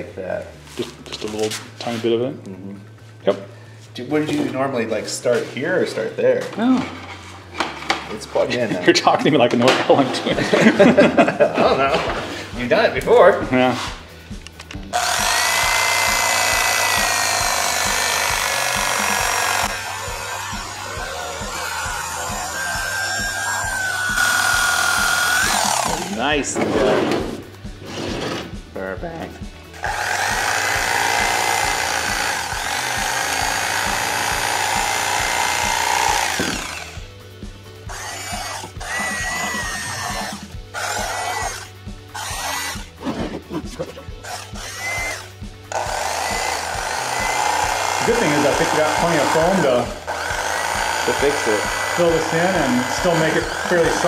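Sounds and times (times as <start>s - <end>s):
electric knife whining through foam: 14.9s - 27.0s, 29.7s - 37.2s, 37.8s - 43.5s, 44.1s - 54.0s.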